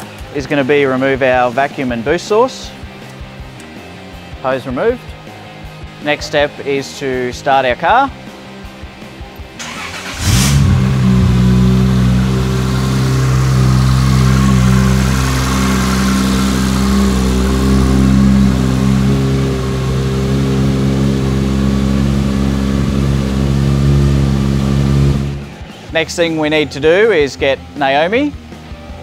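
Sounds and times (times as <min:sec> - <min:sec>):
car engine starting and idling: 0:09.6 - 0:25.8.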